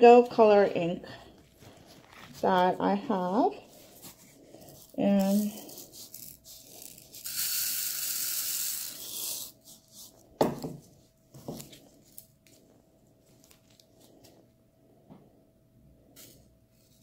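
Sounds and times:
small plastic gems pouring: 5.2 - 9.6.

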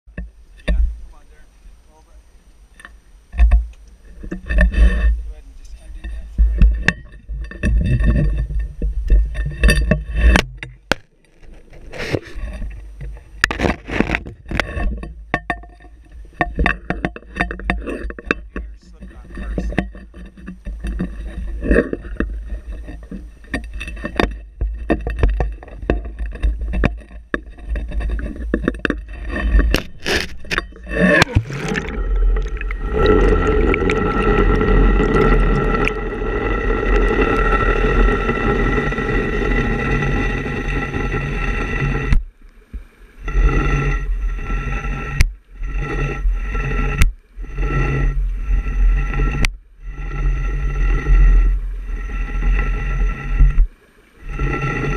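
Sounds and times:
muffled underwater noise: 0.5 - 8.4, 17.4 - 24.3, 27.7 - 42.2
camera plunging into water: 6.6 - 15.0, 19.3 - 40.2
low wind rumble: 17.6 - 54.9.

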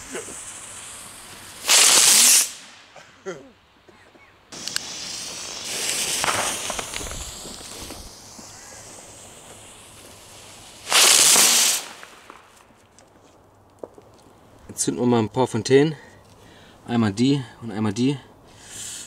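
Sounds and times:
firework hissing and whistling: 0.0 - 3.0, 4.5 - 13.4, 18.6 - 19.0
loud firework rush: 0.0 - 3.0, 4.5 - 12.8.

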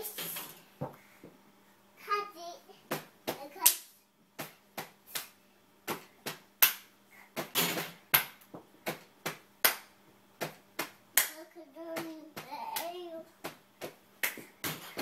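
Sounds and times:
hands clapping: 9.6 - 9.9, 10.8 - 13.0, 14.2 - 14.5.

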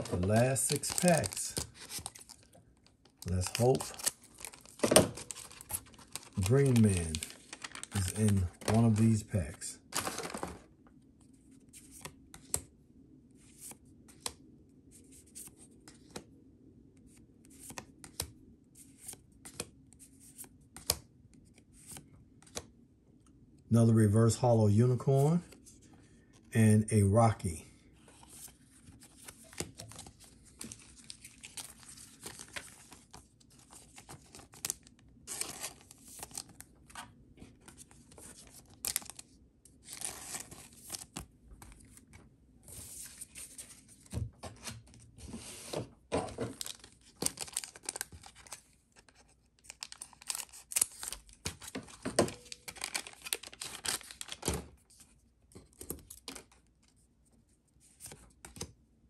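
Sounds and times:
wrapper tearing and crinkling: 0.0 - 2.5, 3.2 - 9.2, 46.5 - 48.6, 49.6 - 51.8, 52.4 - 54.5.

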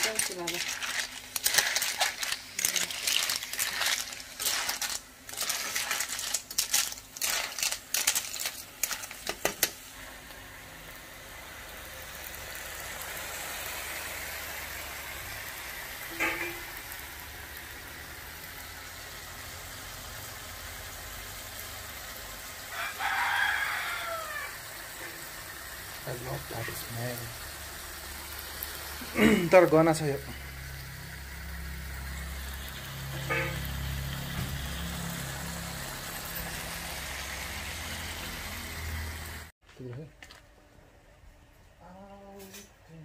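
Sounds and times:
shells clattering in a pan: 0.0 - 9.8
pan sizzling: 0.0 - 39.5.

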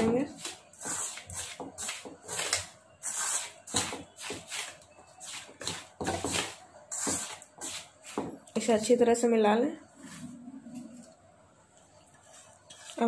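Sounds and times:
hand scraping flour in metal bowl: 0.0 - 8.2, 12.2 - 13.0.

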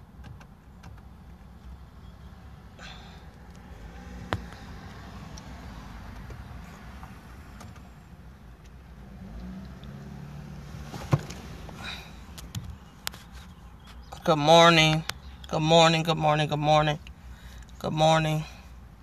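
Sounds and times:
engine and traffic rumble: 0.0 - 19.0.

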